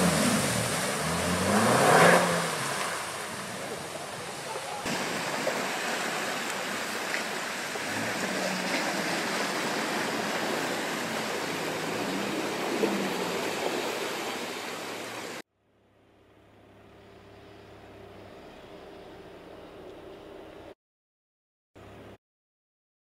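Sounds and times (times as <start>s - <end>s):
muddy water splashing: 0.0s - 15.4s
vehicle engine running: 0.0s - 20.7s
quieter vehicle engine: 0.0s - 20.8s.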